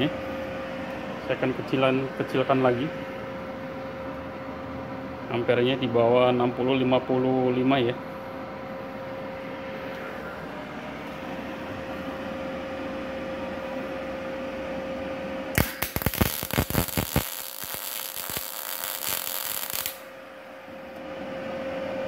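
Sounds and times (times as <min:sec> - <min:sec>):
welder humming: 0:08.8 - 0:22.0
welding arc crackling: 0:15.6 - 0:20.1.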